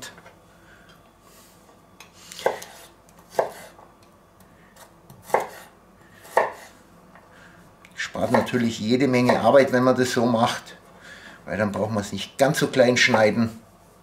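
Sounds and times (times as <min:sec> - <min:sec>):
knife chopping on wooden board: 0:02.4 - 0:03.8, 0:05.1 - 0:05.7, 0:06.3 - 0:06.7, 0:09.2 - 0:09.5.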